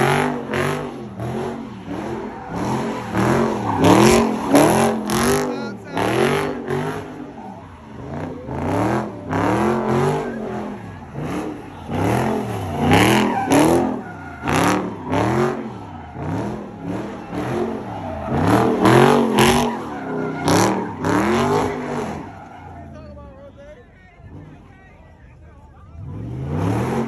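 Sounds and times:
car engine revving: 0:00.0 - 0:23.1, 0:25.7 - 0:27.0
tire screech: 0:00.0 - 0:23.6, 0:25.9 - 0:27.0.

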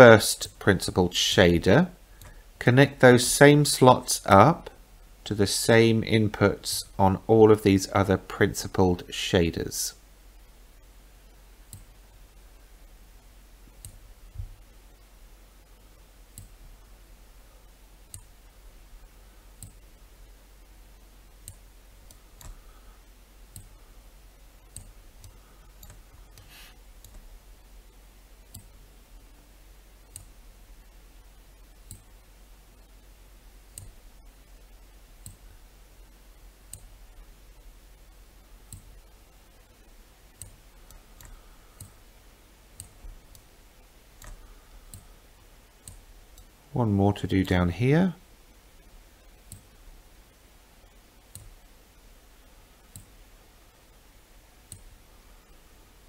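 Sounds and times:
low steady hum: 0:00.0 - 0:56.0
computer mouse clicks: 0:11.7 - 0:12.0, 0:13.8 - 0:14.0, 0:16.3 - 0:16.6, 0:18.1 - 0:18.4, 0:19.6 - 0:19.9, 0:21.4 - 0:22.7, 0:23.5 - 0:23.7, 0:24.6 - 0:27.3, 0:28.4 - 0:28.8, 0:30.1 - 0:30.4, 0:31.8 - 0:32.2, 0:33.7 - 0:34.0, 0:35.2 - 0:35.5, 0:36.7 - 0:37.0, 0:38.6 - 0:39.1, 0:40.3 - 0:42.0, 0:42.7 - 0:43.5, 0:44.2 - 0:45.1, 0:45.8 - 0:46.6, 0:49.4 - 0:49.8, 0:51.3 - 0:51.6, 0:52.8 - 0:53.2, 0:54.6 - 0:55.0.

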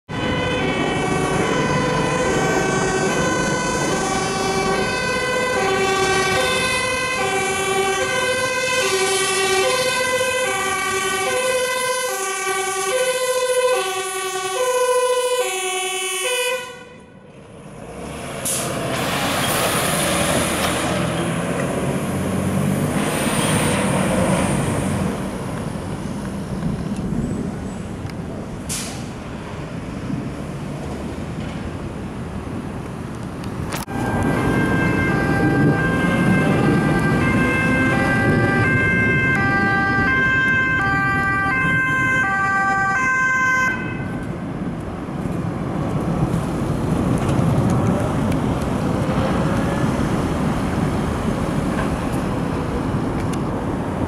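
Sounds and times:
two-tone fire engine siren: 0:00.1 - 0:17.3, 0:33.8 - 0:44.4
truck engine and tyre noise: 0:00.1 - 0:54.0.

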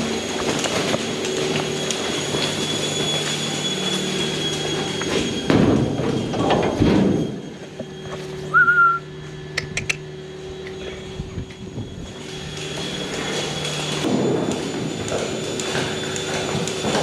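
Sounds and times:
milking machinery humming and hissing: 0:00.0 - 0:17.0
short rising whistle: 0:07.8 - 0:09.9.

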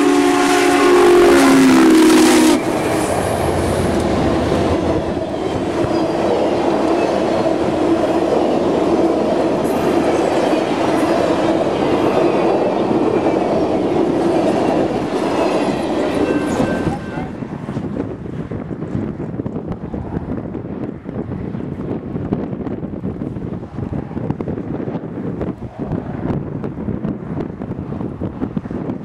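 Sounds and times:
steam locomotive chime whistle: 0:00.0 - 0:03.5, 0:14.6 - 0:17.4
train cars rumbling on rails: 0:00.0 - 0:29.0.

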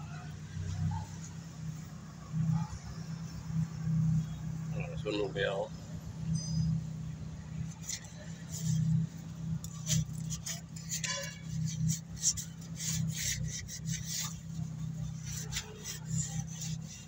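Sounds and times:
steady low hum: 0:00.0 - 0:17.0
rubbing and scraping noises: 0:07.5 - 0:17.0.

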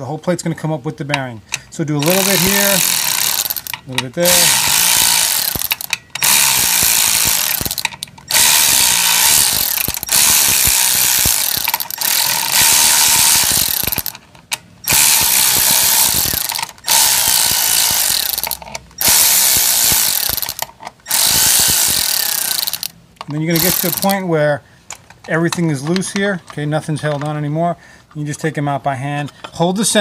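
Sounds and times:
electric ratchet running: 0:02.0 - 0:14.2, 0:14.8 - 0:24.2.

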